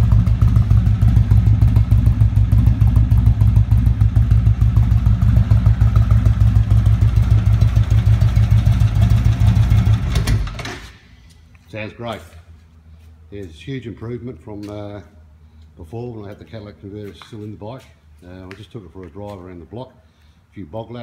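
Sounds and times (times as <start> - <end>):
motorcycle engine idling: 0.0 - 10.7.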